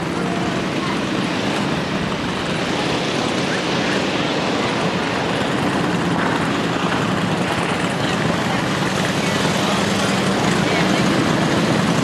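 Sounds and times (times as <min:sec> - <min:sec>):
constant rushing noise: 0:00.0 - 0:12.0.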